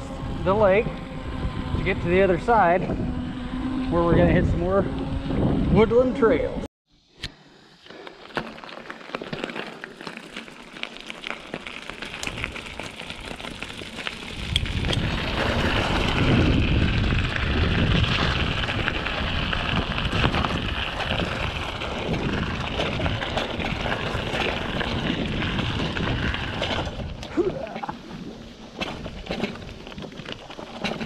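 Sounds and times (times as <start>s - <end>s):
low rumble on microphone: 0.0s - 6.7s, 12.1s - 30.2s
bike tyres crunching on gravel: 7.8s - 31.0s.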